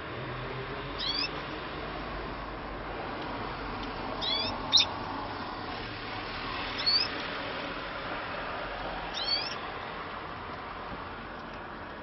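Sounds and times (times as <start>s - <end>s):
canaries chirping: 1.0s - 1.4s, 4.2s - 5.0s, 6.4s - 7.2s, 9.1s - 9.6s.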